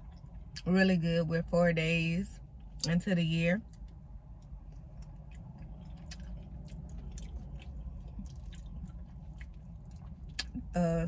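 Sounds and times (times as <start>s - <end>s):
close-up chewing with wet clicks: 0.0s - 0.7s, 3.6s - 10.7s
low steady hum: 0.0s - 11.0s.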